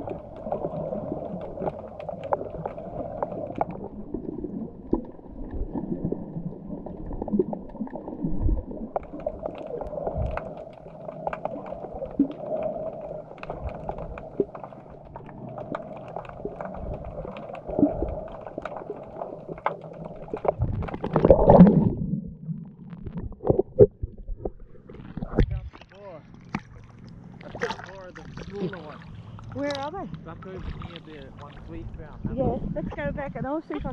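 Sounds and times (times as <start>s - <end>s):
bubbles popping: 0.0s - 25.9s
burst of bubbling: 0.0s - 29.1s
water sloshing underwater: 0.0s - 33.9s
small clicks: 9.0s - 21.3s.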